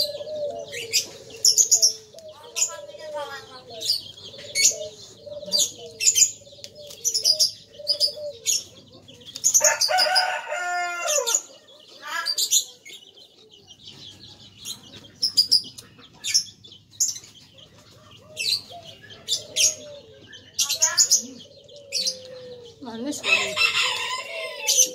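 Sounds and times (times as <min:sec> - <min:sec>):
rooster crowing: 0:09.6 - 0:11.5, 0:23.2 - 0:24.9.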